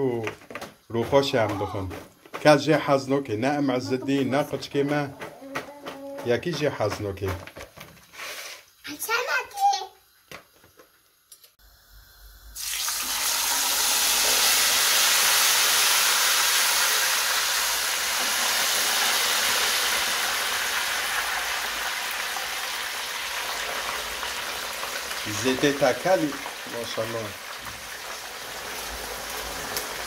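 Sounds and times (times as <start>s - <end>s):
chips sizzling in hot oil: 12.5s - 30.0s.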